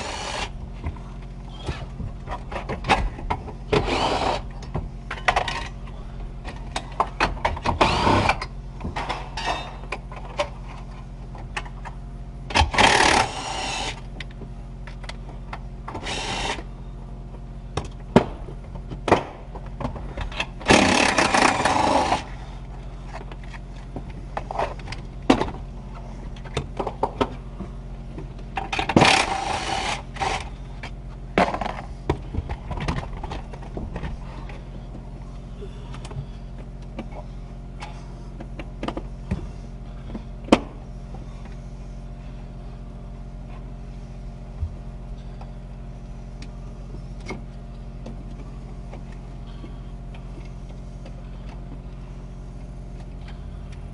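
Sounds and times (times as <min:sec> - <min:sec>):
power tool running: 0:00.0 - 0:00.6, 0:03.7 - 0:04.6, 0:07.5 - 0:08.5, 0:12.5 - 0:14.1, 0:15.9 - 0:16.7, 0:20.6 - 0:22.4, 0:28.7 - 0:30.7
steady low hum: 0:00.0 - 0:53.9.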